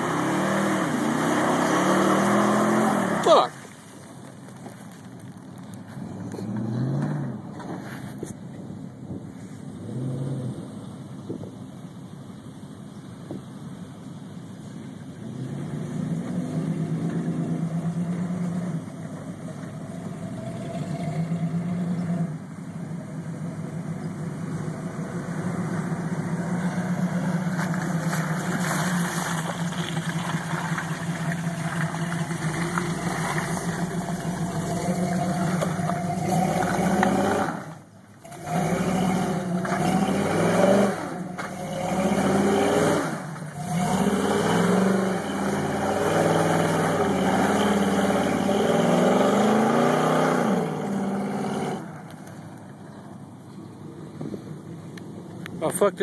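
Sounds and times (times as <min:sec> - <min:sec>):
truck engine revving: 0:00.0 - 0:03.5, 0:06.0 - 0:07.7, 0:15.2 - 0:52.3
tyres churning in mud: 0:00.0 - 0:08.3, 0:15.2 - 0:52.9.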